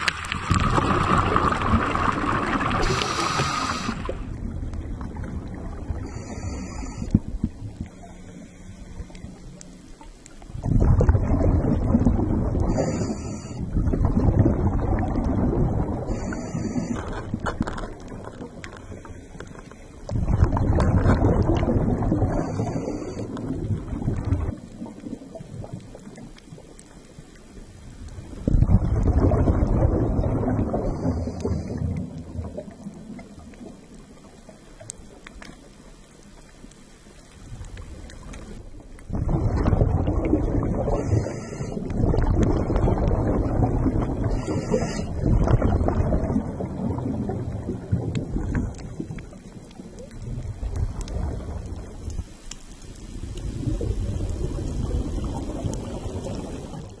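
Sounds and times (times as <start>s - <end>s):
underwater rumble and hiss: 0.0s - 57.0s.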